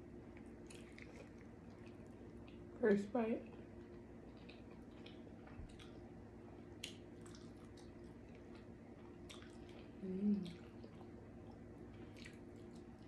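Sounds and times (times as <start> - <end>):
low background hum: 0.0 - 13.0
person chewing: 0.3 - 2.6, 3.8 - 13.0
person humming: 10.0 - 10.6.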